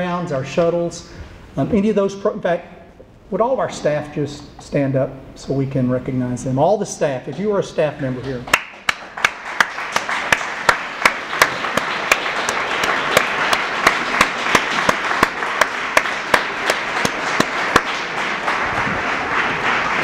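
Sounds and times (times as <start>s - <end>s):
audience applauding: 8.1s - 20.0s
person clapping steady beat: 8.2s - 20.0s.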